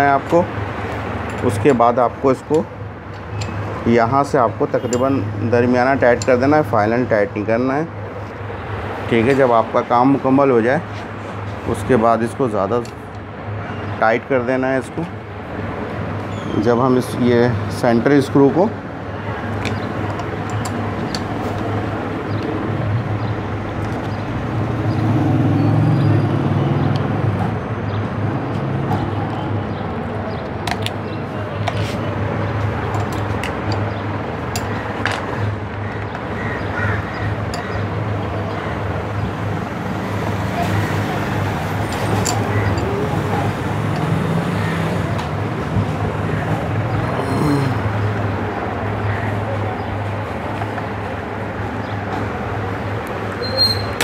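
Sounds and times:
metallic clicks of tools: 32.9 - 33.9, 34.5 - 35.2.

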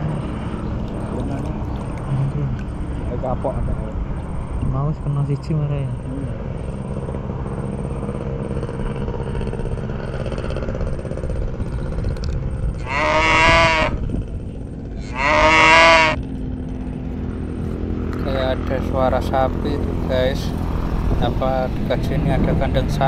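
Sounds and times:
low background rumble: 0.0 - 23.0
cow mooing: 12.8 - 14.0, 14.9 - 16.2.

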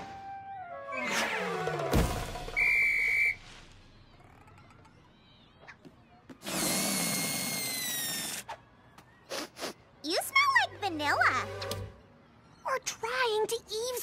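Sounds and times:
falling squealing whistle: 2.5 - 3.5
high whistle-like tone: 2.5 - 3.5.

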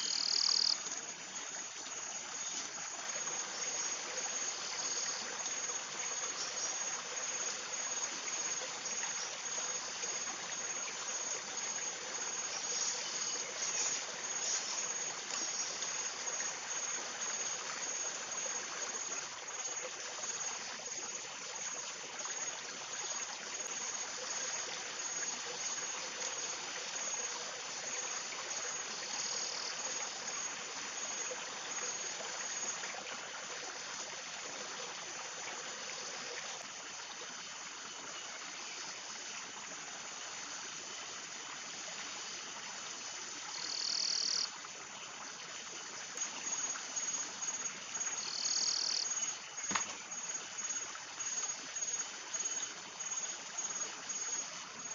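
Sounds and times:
pulsing insect trill: 0.0 - 32.8, 43.5 - 44.5, 46.2 - 54.9
running water: 0.0 - 54.9.

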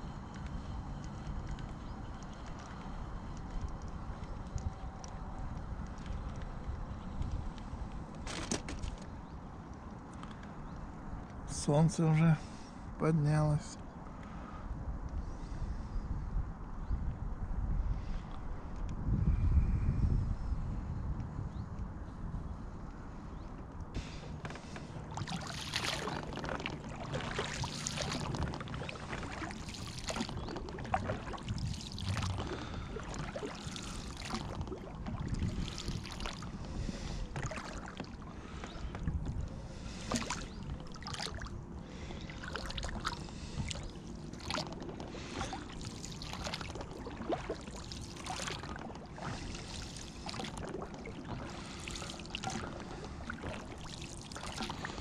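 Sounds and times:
oars splashing through water: 24.0 - 55.0.

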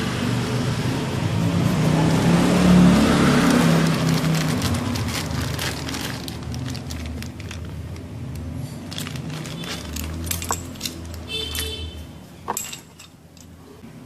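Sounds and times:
plastic bag crinkling: 3.3 - 11.1.

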